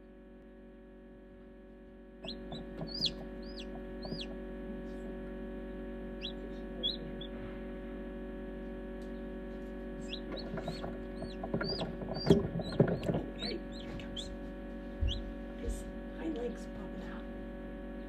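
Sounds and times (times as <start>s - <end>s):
steady hum: 0.0s - 18.0s
chick peeping: 2.2s - 4.4s, 6.2s - 7.4s, 10.0s - 14.4s, 15.0s - 15.3s.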